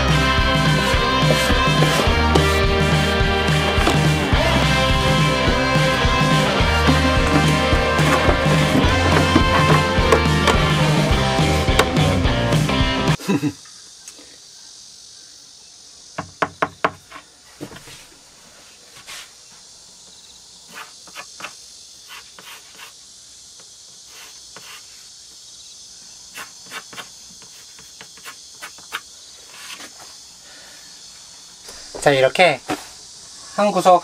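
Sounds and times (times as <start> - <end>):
high insect buzz: 0.0 - 34.0
wooden board knocking: 3.6 - 4.2, 6.9 - 10.8, 11.7 - 12.1, 16.2 - 17.0.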